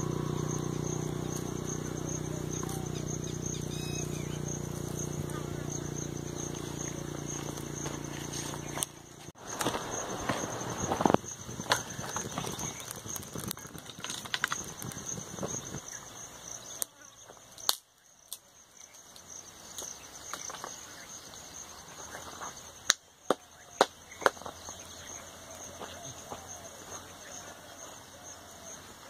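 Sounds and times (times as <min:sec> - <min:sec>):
high-pitched insect chirring: 0:00.0 - 0:09.3.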